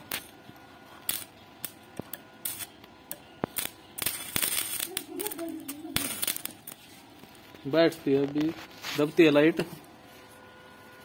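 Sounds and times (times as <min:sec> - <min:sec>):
welding arc crackling: 0:00.0 - 0:10.0
welding rod clicking on steel: 0:01.0 - 0:06.8.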